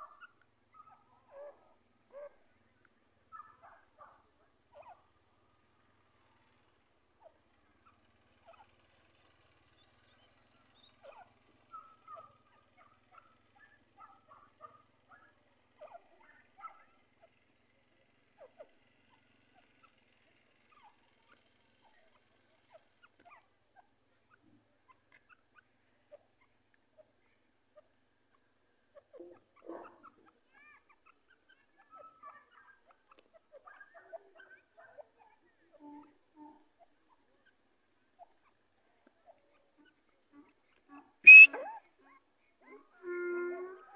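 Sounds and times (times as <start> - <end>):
francolin soft calls: 38.2 - 43.9.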